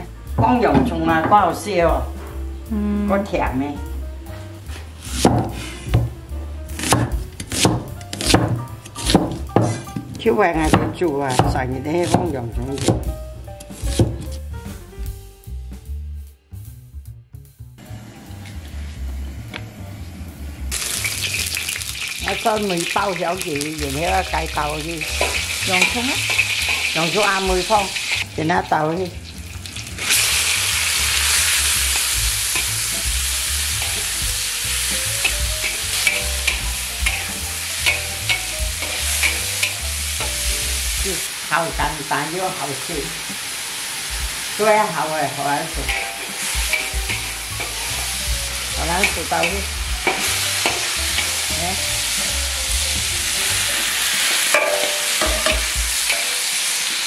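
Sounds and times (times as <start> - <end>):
food sizzling in oil: 0.2 - 14.5, 20.6 - 57.0
spatula knocking against pan: 54.6 - 56.2.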